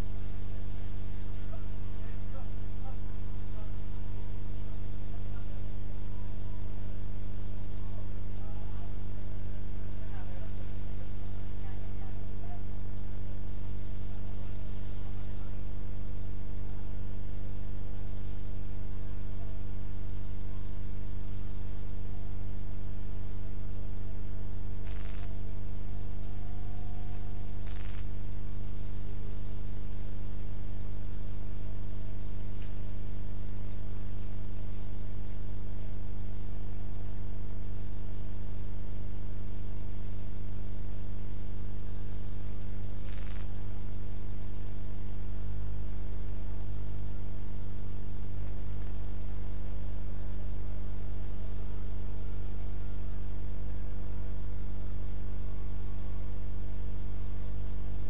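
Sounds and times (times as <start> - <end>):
steady low buzzy hum: 0.0 - 58.0
high-pitched chirp: 24.9 - 25.3, 27.6 - 28.1, 43.0 - 43.6
short high-pitched beeps: 24.9 - 25.4, 27.6 - 28.1, 43.0 - 43.6.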